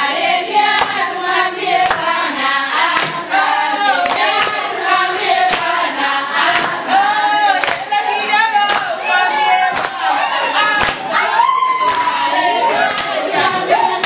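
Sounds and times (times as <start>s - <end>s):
women singing together: 0.0s - 14.0s
hand claps: 0.7s - 1.0s, 1.8s - 2.1s, 2.9s - 3.2s, 4.0s - 4.7s, 5.4s - 6.8s, 7.6s - 8.0s, 8.6s - 9.0s, 9.7s - 10.1s, 10.8s - 11.1s, 11.7s - 12.2s, 12.9s - 13.2s.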